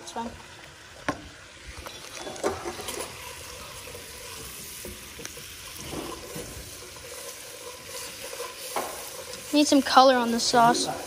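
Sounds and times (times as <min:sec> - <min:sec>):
sauce sizzling in a pot: 0:00.0 - 0:11.0.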